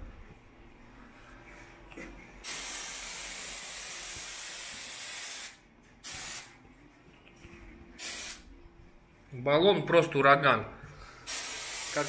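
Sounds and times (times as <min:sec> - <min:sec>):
aerosol can spraying: 0:02.4 - 0:06.5, 0:08.0 - 0:08.4, 0:11.3 - 0:12.0.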